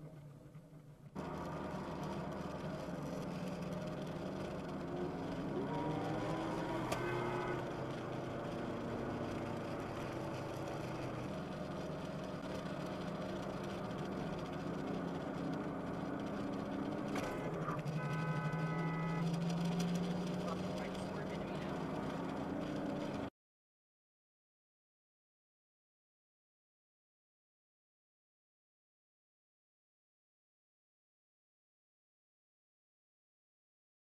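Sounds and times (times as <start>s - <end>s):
car engine accelerating: 0.0s - 23.3s
road noise inside car: 0.0s - 23.3s.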